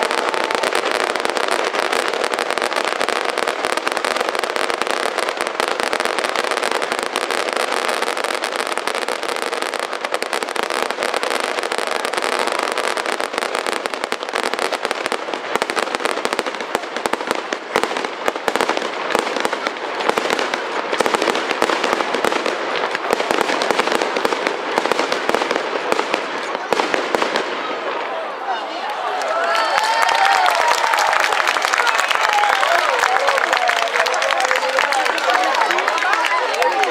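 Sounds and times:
fireworks bursting and crackling: 0:00.0 - 0:36.9.

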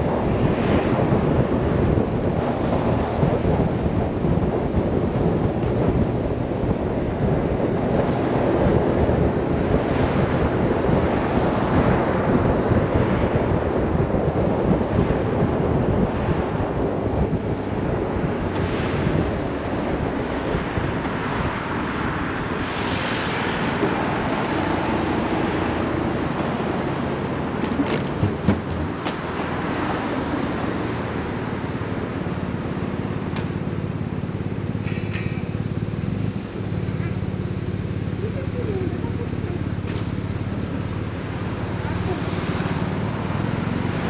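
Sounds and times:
wind rushing over microphone: 0:00.0 - 0:44.0
motorcycle engine running: 0:25.4 - 0:44.0.

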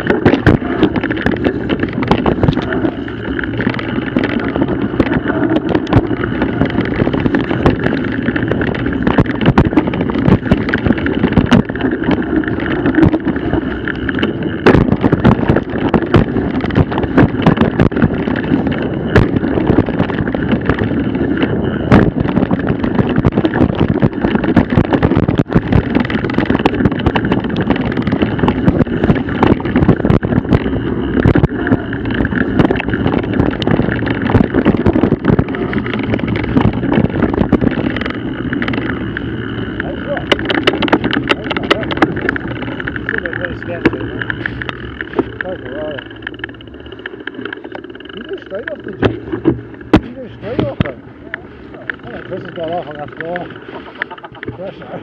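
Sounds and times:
bike tyres rumbling and rattling: 0:00.0 - 0:55.0
wind on microphone: 0:00.0 - 0:55.0
sharp knocks from bumps: 0:49.0 - 0:51.0.

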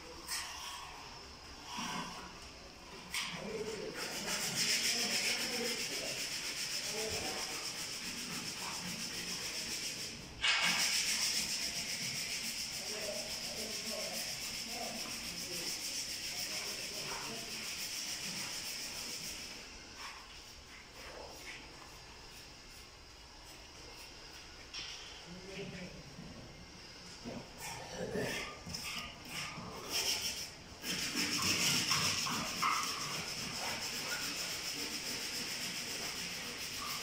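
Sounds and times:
plaster being sanded: 0:03.2 - 0:24.1, 0:28.8 - 0:37.0.

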